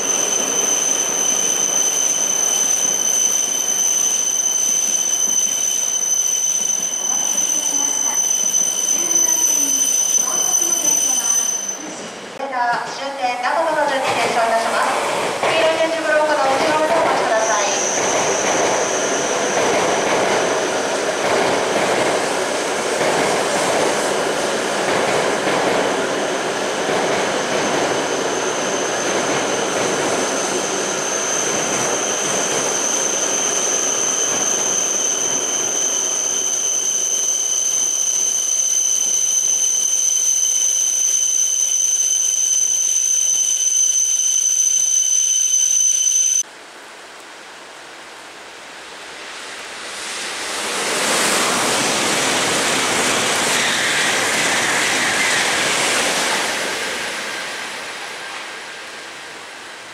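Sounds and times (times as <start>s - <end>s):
high brake squeal: 0.0s - 12.3s, 17.3s - 20.1s, 27.3s - 46.4s, 53.3s - 56.3s
train rolling rumble: 0.0s - 42.3s.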